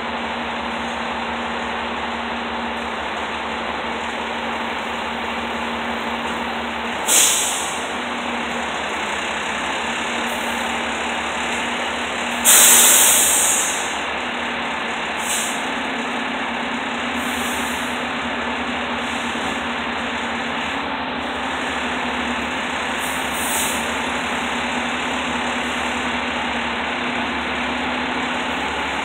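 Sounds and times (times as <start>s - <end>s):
truck engine idling: 0.0s - 29.0s
air brake hiss: 7.0s - 7.9s, 12.4s - 14.0s, 15.2s - 15.6s, 23.0s - 23.9s.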